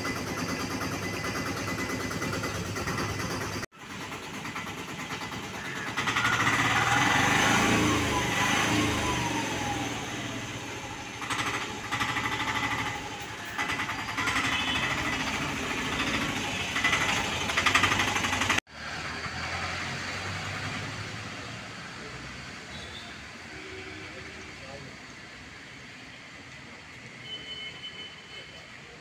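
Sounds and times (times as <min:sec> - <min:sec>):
workshop yard noise: 0:00.0 - 0:29.0
vehicle engine passing: 0:06.1 - 0:22.6.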